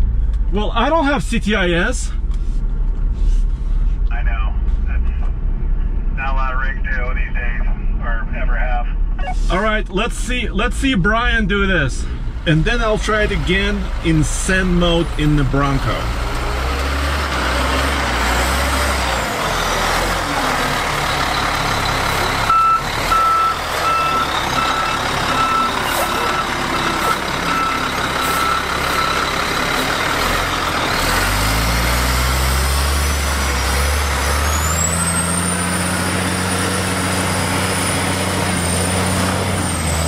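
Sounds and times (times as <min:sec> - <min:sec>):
diesel truck engine: 0:00.0 - 0:40.0
reverse alarm beeping: 0:21.2 - 0:29.9.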